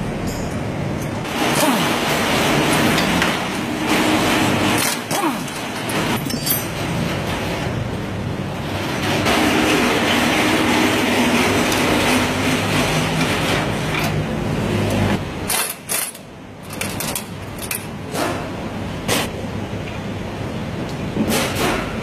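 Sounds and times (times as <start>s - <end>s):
metal clinks and knocks: 0.1s - 1.3s, 4.8s - 7.3s.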